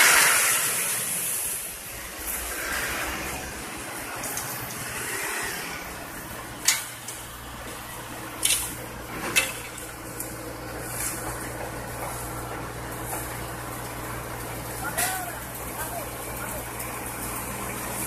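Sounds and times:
rake scraping asphalt: 0.0s - 7.3s, 7.9s - 13.4s
paver engine humming: 0.0s - 18.0s
traffic on wet road: 0.0s - 18.0s.

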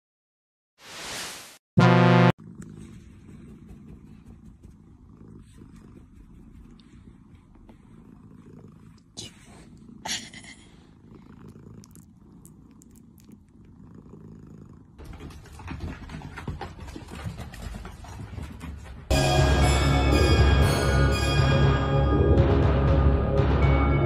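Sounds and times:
kitten purring: 2.4s - 15.4s.

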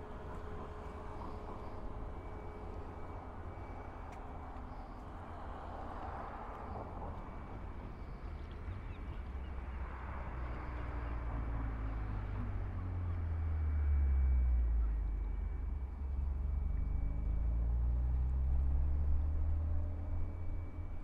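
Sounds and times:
outdoor background noise: 0.0s - 21.0s
vehicle engine rumble approaching: 0.0s - 21.0s.

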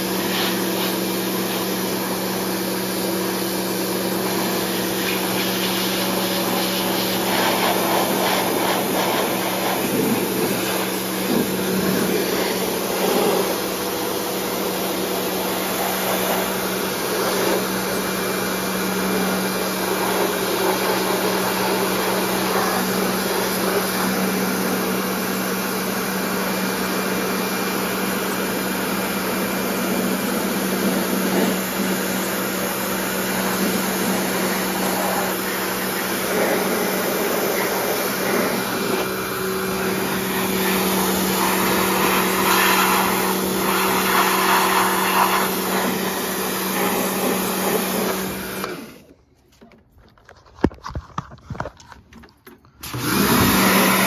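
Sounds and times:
pressure washer humming: 0.0s - 49.2s, 52.8s - 54.0s.

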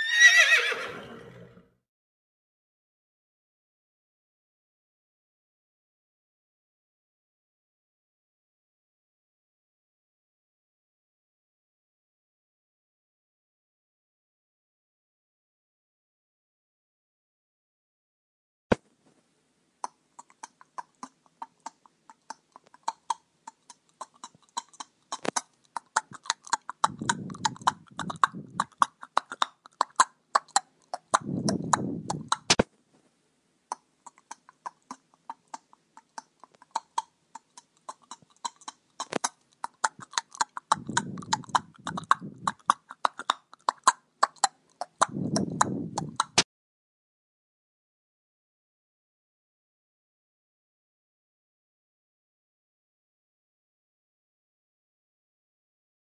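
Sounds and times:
horse snorting: 0.0s - 1.6s, 24.0s - 32.6s, 37.9s - 46.4s
horse hooves clicking: 26.0s - 32.6s, 38.2s - 46.4s.

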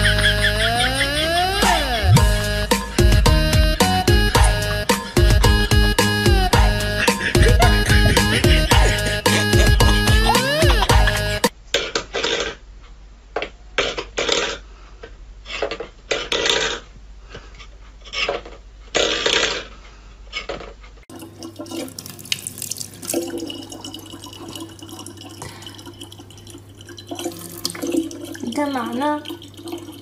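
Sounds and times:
steady low hum: 0.0s - 11.5s
faucet running into plastic bottle: 21.1s - 30.0s.

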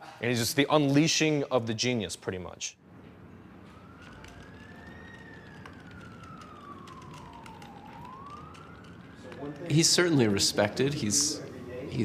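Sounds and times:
faint siren wailing: 2.8s - 11.6s.

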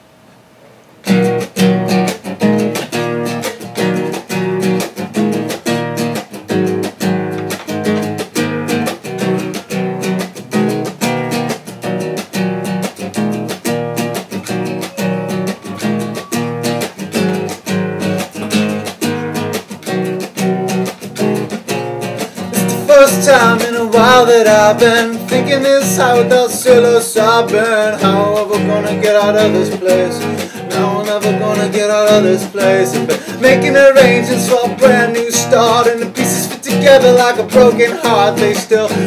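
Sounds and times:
classical guitar strummed: 1.0s - 39.0s.

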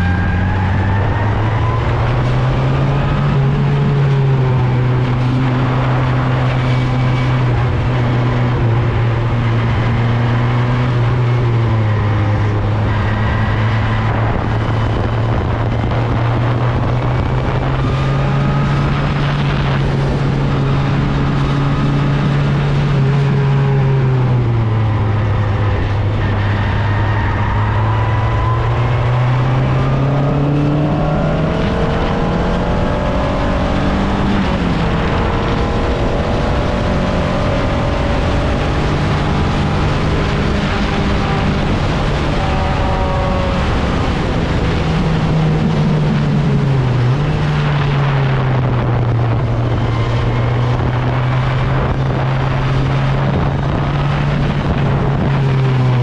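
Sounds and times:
race car engine running: 0.0s - 56.0s.

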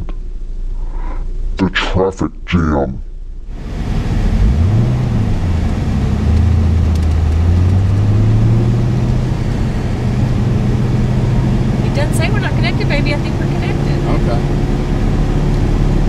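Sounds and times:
car engine revving: 3.5s - 16.0s.

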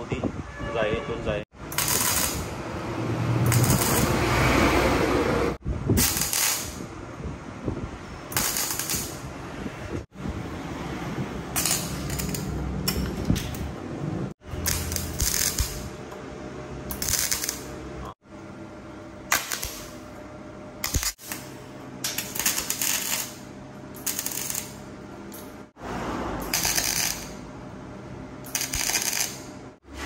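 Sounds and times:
arc welding crackle: 1.6s - 4.5s, 5.9s - 6.9s, 8.3s - 9.4s, 11.4s - 13.6s, 14.4s - 16.0s, 16.9s - 18.2s, 19.3s - 20.1s, 20.8s - 24.8s, 26.4s - 27.5s, 28.4s - 29.6s.

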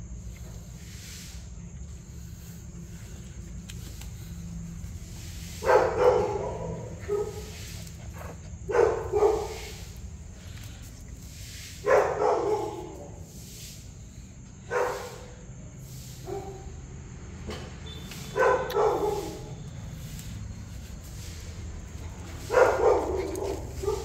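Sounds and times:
small dog barking: 5.6s - 7.7s, 8.7s - 9.8s, 11.8s - 13.2s, 14.7s - 15.3s, 18.3s - 19.6s, 22.4s - 24.0s.

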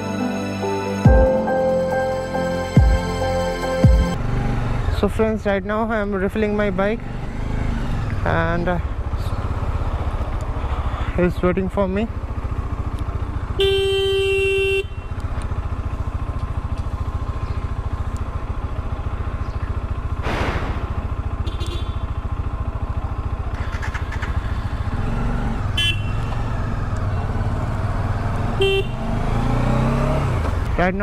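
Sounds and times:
motorcycle engine running: 3.8s - 31.0s
vehicle horn: 13.5s - 15.2s, 21.3s - 22.2s, 25.7s - 26.4s, 28.5s - 29.1s.

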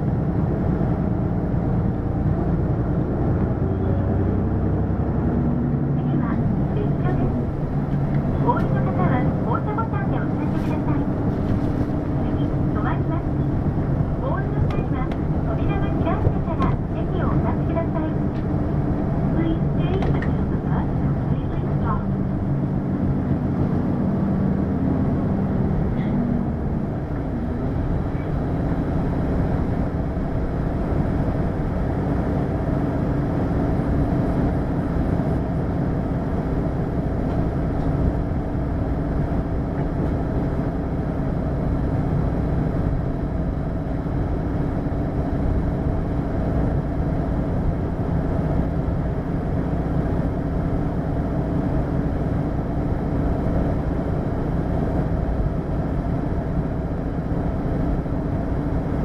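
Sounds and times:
diesel bus engine hum: 0.0s - 59.0s.

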